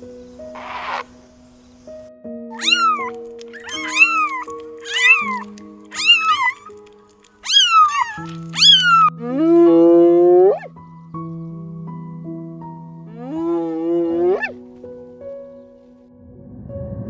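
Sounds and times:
soft background music: 0.0s - 17.0s
cat meowing: 0.6s - 1.0s, 2.5s - 9.5s, 10.3s - 10.7s, 13.1s - 14.6s.

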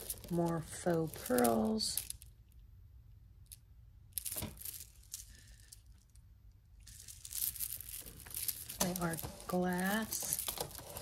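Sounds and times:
rustling: 4.2s - 11.0s.

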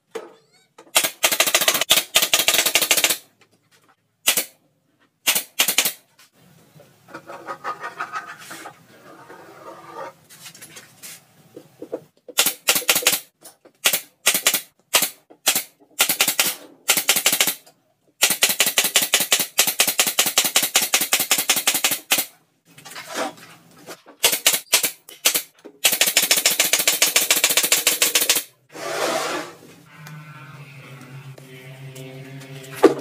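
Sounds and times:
nail gun firing: 0.9s - 3.2s, 4.2s - 4.6s, 5.2s - 6.0s, 12.4s - 17.6s, 18.2s - 22.3s, 24.2s - 28.5s.

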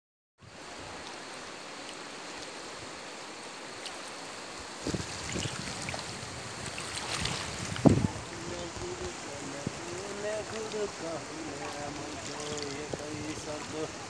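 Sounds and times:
river rushing over pebbles: 0.4s - 14.0s
wind buffeting microphone: 4.6s - 14.0s.

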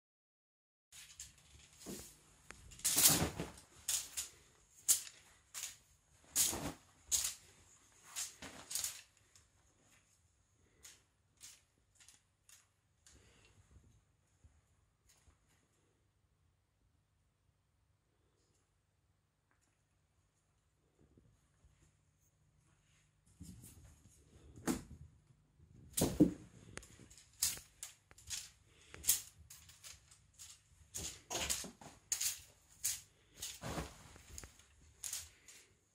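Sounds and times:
wand toy swishing over a duvet: 1.0s - 9.2s, 25.9s - 35.6s
fabric rustling: 1.0s - 10.2s, 30.5s - 35.8s.

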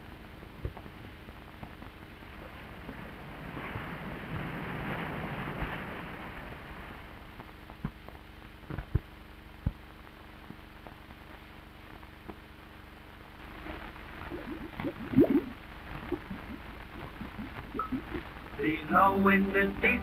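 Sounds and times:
sharp clicks and pops: 0.4s - 2.1s, 7.3s - 12.5s, 13.3s - 18.6s
ocean surf: 2.4s - 7.3s, 14.3s - 20.0s.

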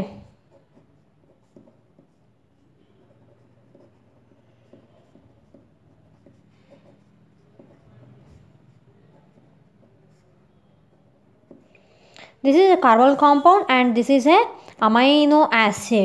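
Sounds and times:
pen scratching on paper: 0.0s - 11.8s.

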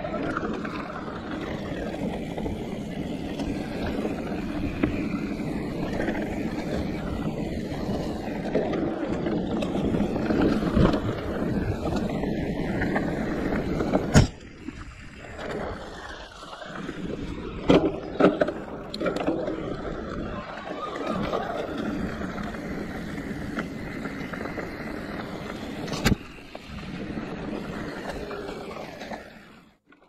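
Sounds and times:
tyres and wind rumble: 0.0s - 29.8s.

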